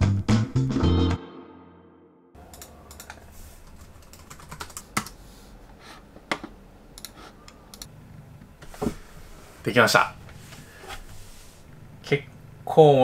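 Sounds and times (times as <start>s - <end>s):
typing on keyboard: 2.6s - 5.2s.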